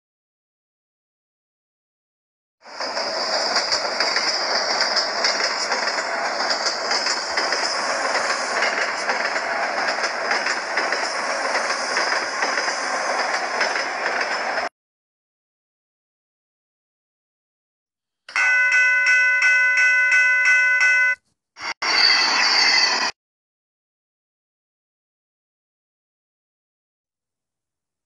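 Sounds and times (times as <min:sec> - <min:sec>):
train wheels clattering on rails: 0:02.7 - 0:14.7
high wheel squeal: 0:21.6 - 0:23.2.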